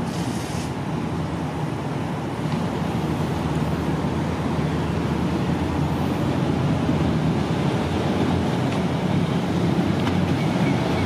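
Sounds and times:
diesel railcar engine rumble: 0:00.0 - 0:11.0.

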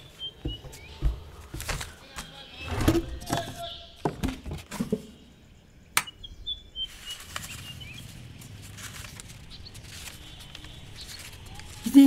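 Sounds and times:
faint bird chirps: 0:05.0 - 0:12.0.

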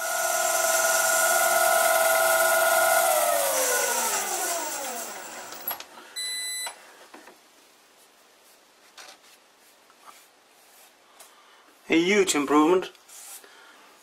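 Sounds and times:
lathe motor winding down: 0:00.0 - 0:05.8.

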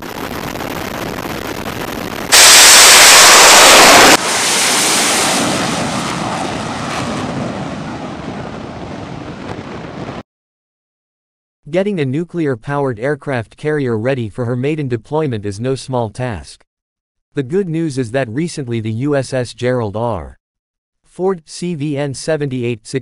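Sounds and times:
wind noise: 0:00.0 - 0:10.2
jet engine roar: 0:02.2 - 0:10.2.

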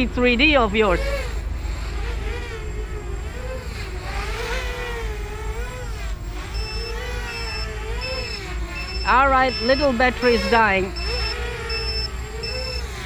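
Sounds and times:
quadcopter motors buzzing: 0:00.0 - 0:13.0
low-battery alarm beeps: 0:06.5 - 0:13.0.

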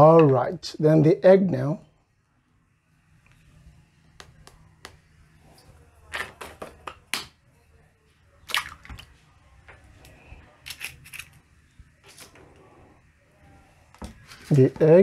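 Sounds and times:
egg tapping and cracking: 0:04.2 - 0:05.0.

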